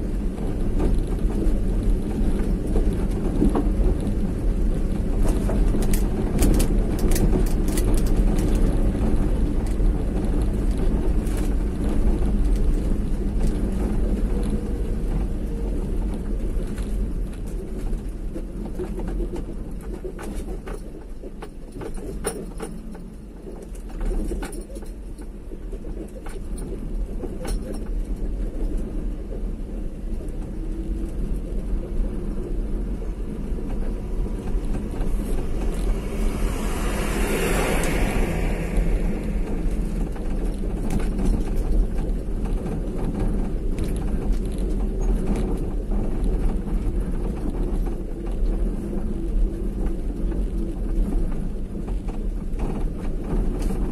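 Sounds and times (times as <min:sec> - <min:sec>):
vehicle road rumble: 0:00.0 - 0:53.9
loud rushing sound: 0:34.1 - 0:41.3.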